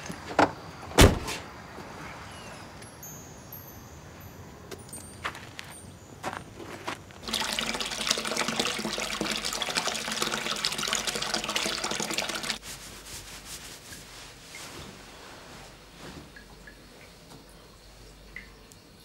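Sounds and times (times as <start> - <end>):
water running into bathtub: 7.2 - 12.6.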